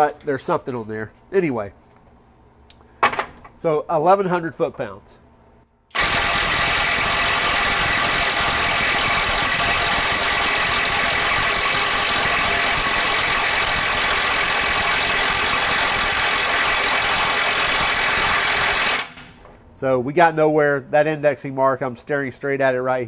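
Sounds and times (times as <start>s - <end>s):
impact wrench hammering: 5.9s - 19.6s.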